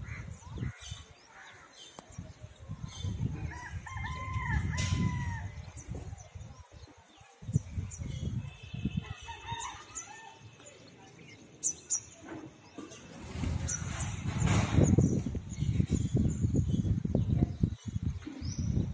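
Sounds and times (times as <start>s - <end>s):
rooster crowing: 3.5s - 5.5s, 9.0s - 10.4s.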